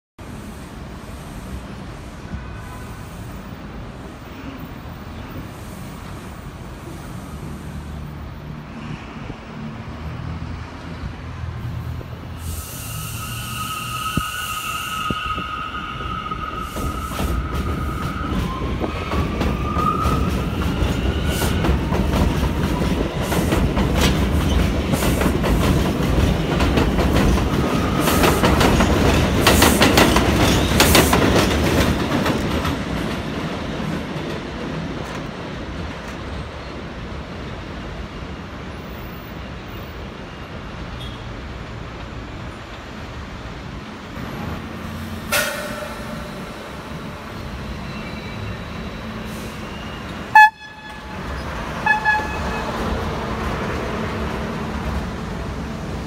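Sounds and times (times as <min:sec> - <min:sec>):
train high whine: 0:11.0 - 0:31.9, 0:44.0 - 0:56.0
train wheels rumbling and clicking: 0:13.3 - 0:37.6, 0:41.8 - 0:56.0.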